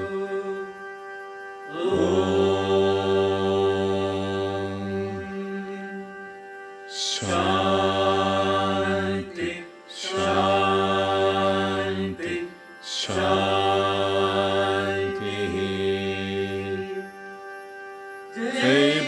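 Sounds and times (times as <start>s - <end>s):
group chanting in unison: 1.7s - 5.3s, 7.0s - 17.1s, 18.4s - 19.0s.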